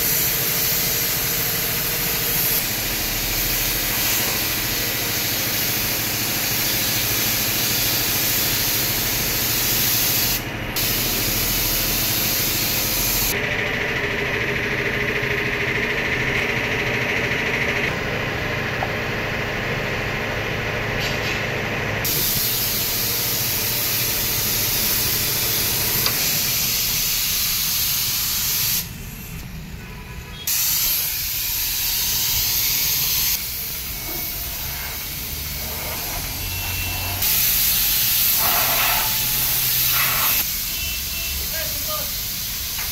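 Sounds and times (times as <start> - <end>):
spray gun hissing: 0.0 - 13.4, 22.0 - 29.0, 30.5 - 42.9.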